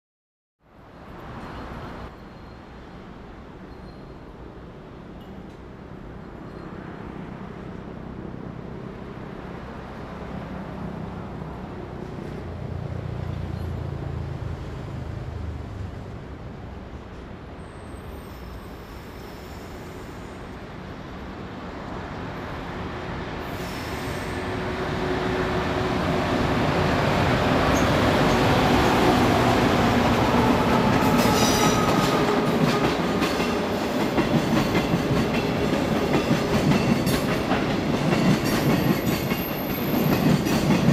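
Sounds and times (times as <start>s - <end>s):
wheel squeal: 3.7s - 4.2s.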